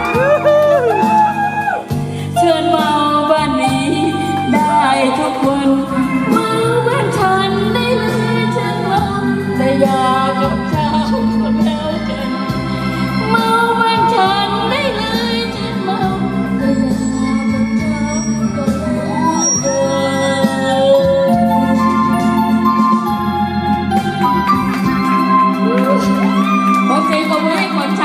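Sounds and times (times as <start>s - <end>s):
bass line: 0.0s - 28.0s
organ-like keyboard: 20.4s - 26.8s.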